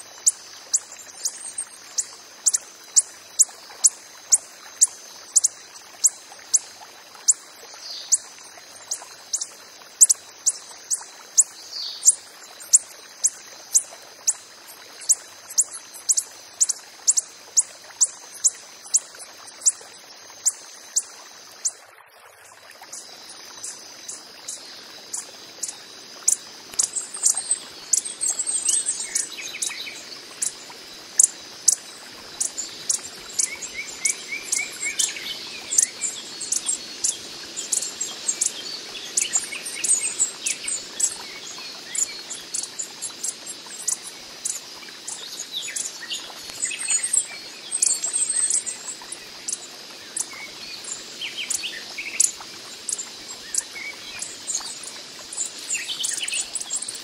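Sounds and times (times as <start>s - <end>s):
high insect trill: 22.7s - 57.0s.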